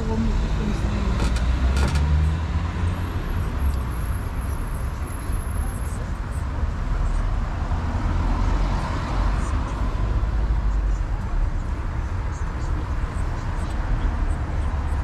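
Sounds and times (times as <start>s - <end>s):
road train rumbling on road: 0.0s - 15.0s.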